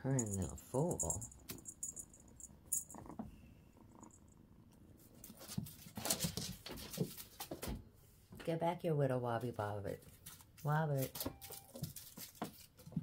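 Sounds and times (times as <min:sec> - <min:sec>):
kitten purring: 0:00.0 - 0:06.6
paws and toys clattering on wood: 0:05.2 - 0:07.8, 0:11.1 - 0:13.0.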